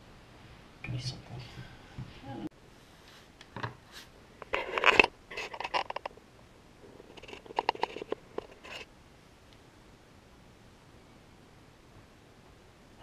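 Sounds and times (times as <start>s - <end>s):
rustling and scraping on a workbench: 2.8s - 6.1s, 6.9s - 8.9s.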